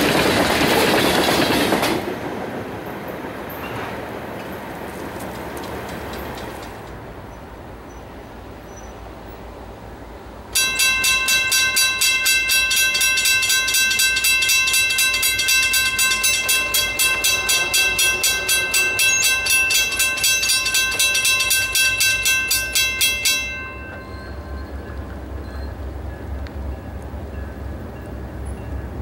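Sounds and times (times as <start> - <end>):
crossing warning bell ringing: 10.5 - 29.0.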